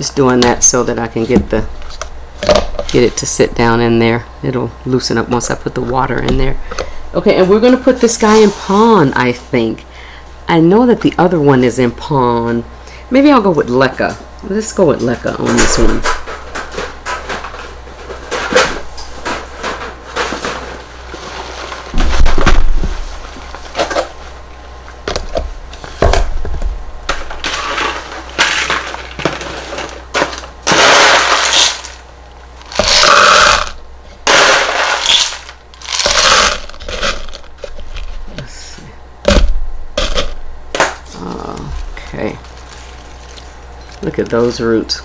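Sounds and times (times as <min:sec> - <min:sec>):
clay pebbles rattling against plastic: 0:27.4 - 0:32.0, 0:32.6 - 0:38.2.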